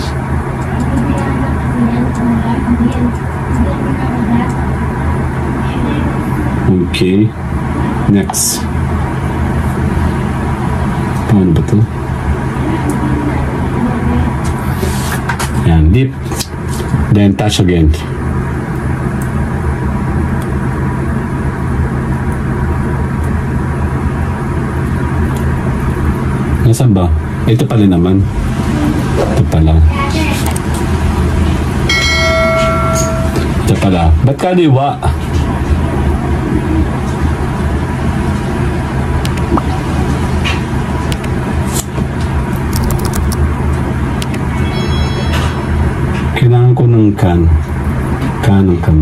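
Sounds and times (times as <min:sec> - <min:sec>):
low droning hum: 0:00.0 - 0:14.8, 0:17.9 - 0:33.8
low rumbling background noise: 0:00.0 - 0:49.0.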